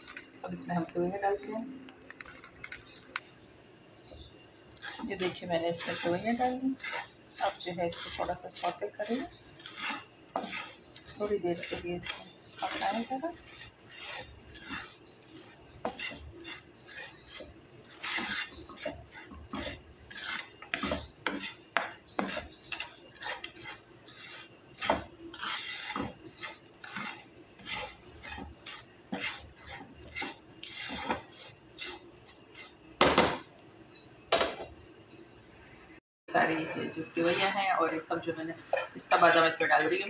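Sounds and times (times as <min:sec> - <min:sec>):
spatula scraping frying pan: 0:04.8 - 0:32.8, 0:36.3 - 0:40.0.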